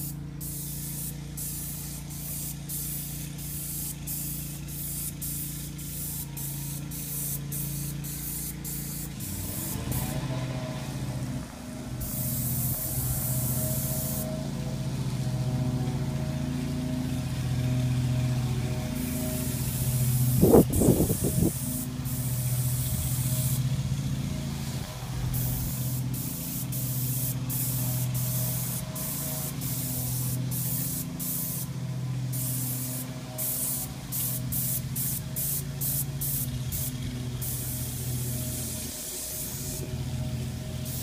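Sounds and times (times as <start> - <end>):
paint spray gun hissing: 0.0 - 10.2, 11.9 - 14.3, 19.0 - 24.1, 24.8 - 41.0
pump motor humming: 0.0 - 41.0.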